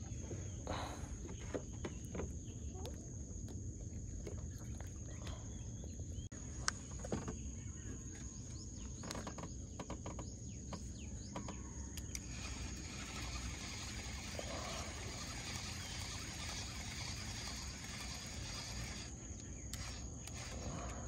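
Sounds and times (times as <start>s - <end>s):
insects buzzing: 8.8s - 21.0s
low outdoor rumble: 10.4s - 21.0s
small clicks: 11.3s - 21.0s.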